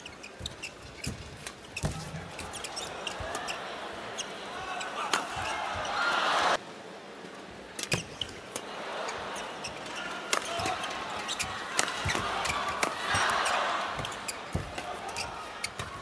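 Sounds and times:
crowd noise: 0.0 - 16.0
indoor hall noise: 0.0 - 16.0
rackets hitting shuttlecock: 10.3 - 16.0.

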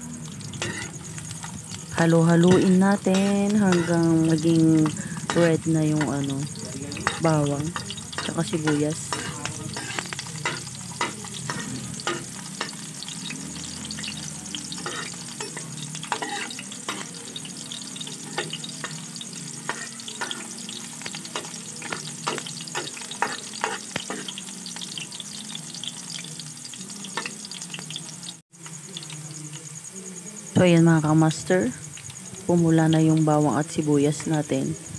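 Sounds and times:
garlic and onion sizzling in oil: 0.0 - 34.9
metal spatula scraping a wok: 0.3 - 1.8, 3.0 - 27.7.

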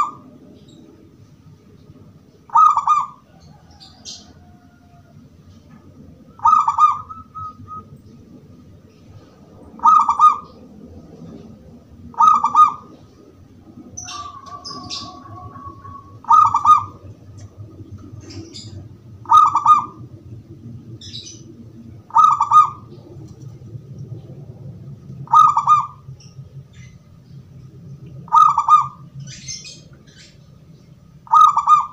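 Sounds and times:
dove cooing: 0.0 - 1.1, 2.5 - 8.4, 9.1 - 24.5, 25.1 - 26.1, 28.2 - 30.4, 31.2 - 31.9
low background rumble: 0.0 - 31.9
steady whistle-like tone: 6.7 - 8.0.

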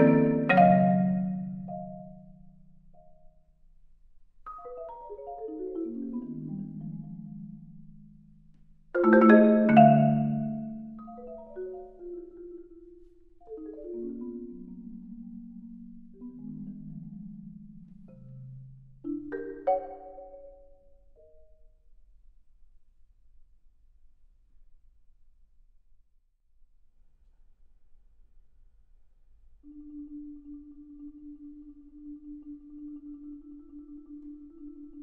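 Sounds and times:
marimba runs and chords: 0.0 - 2.5, 4.5 - 8.4, 9.0 - 20.8.

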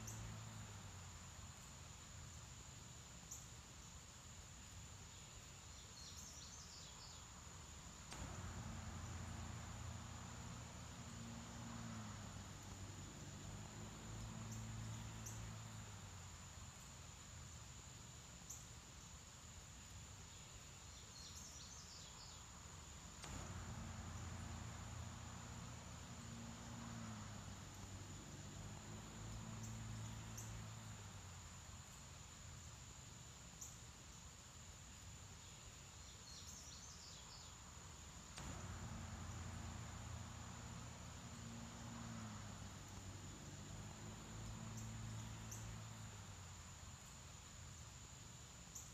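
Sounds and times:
steady hiss: 0.0 - 48.9
low hum: 8.0 - 17.1, 23.1 - 32.2, 38.3 - 47.7
click: 38.3 - 39.0.

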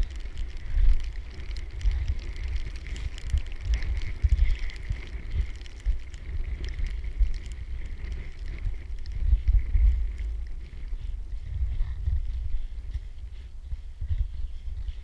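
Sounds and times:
faint clicks: 0.0 - 11.2
wind buffeting microphone: 0.0 - 15.0.

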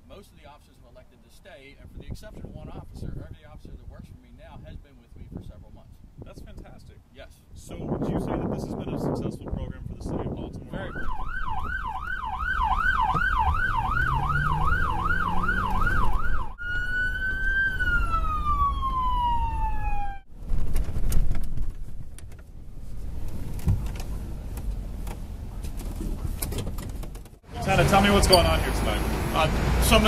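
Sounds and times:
street noise rumble: 7.9 - 30.0
police siren yelp and wail: 10.8 - 20.3
car engine pulling away: 12.8 - 19.0, 27.6 - 30.0.

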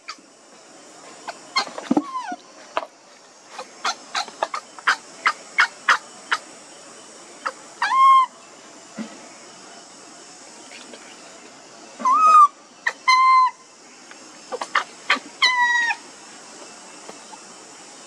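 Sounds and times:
longer pitched animal call: 12.0 - 13.6.

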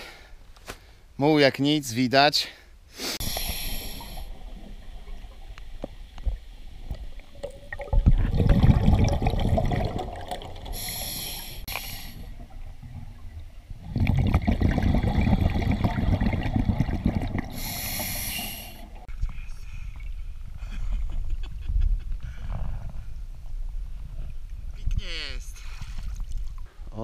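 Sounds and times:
hissing inhale through regulator: 2.9 - 4.4, 10.6 - 12.4, 17.4 - 19.1
exhaled bubbles rumbling underwater: 3.3 - 19.1.

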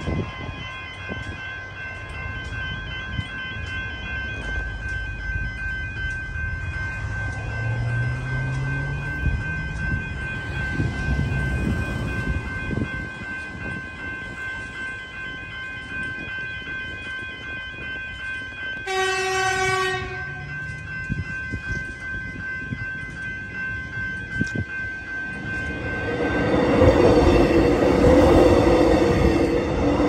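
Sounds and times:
level crossing bells ringing: 0.0 - 30.0
train horn: 18.8 - 20.5.

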